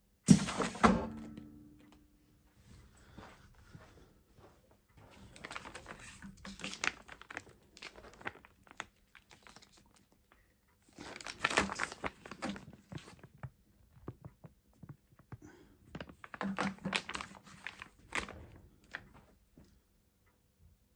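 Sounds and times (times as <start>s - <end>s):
plastic bags crinkling: 5.1s - 13.2s, 15.9s - 19.2s.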